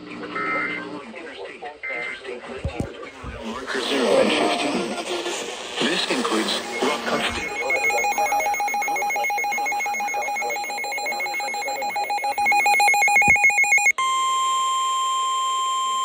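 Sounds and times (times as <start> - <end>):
steady high alarm tone: 4.9 - 16.0
pulsing warbling electronic alert: 5.8 - 13.9.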